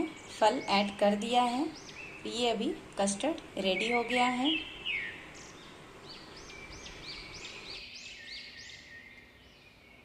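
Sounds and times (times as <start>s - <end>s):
background hiss: 0.0s - 10.0s
bird chirping: 0.0s - 10.0s.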